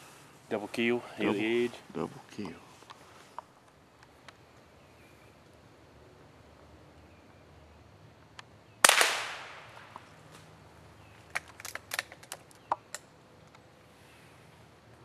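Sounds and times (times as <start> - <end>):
rifle shot: 8.8 - 9.9.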